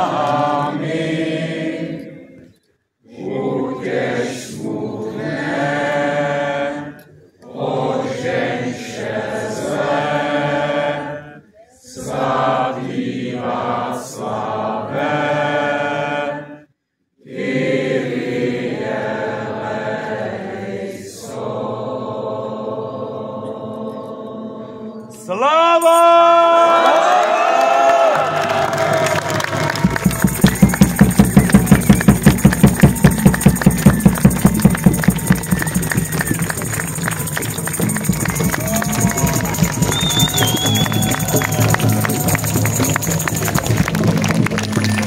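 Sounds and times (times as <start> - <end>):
voices singing a slow hymn: 0.0 - 25.3
crowd cheering: 25.3 - 45.0.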